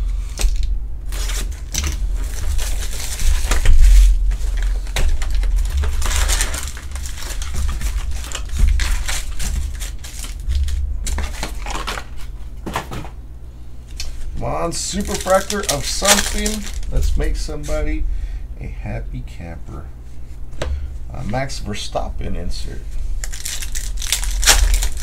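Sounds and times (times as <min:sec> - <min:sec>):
steady low hum: 0:00.0 - 0:25.0
foil packs rustling and crinkling: 0:00.4 - 0:13.2, 0:14.0 - 0:18.0, 0:23.2 - 0:25.0.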